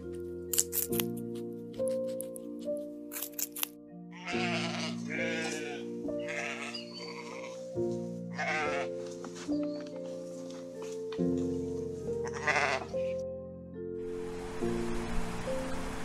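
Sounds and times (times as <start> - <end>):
background music with held notes: 0.0 - 16.0
sheep bleating: 4.1 - 7.6, 8.3 - 9.0, 12.2 - 13.1.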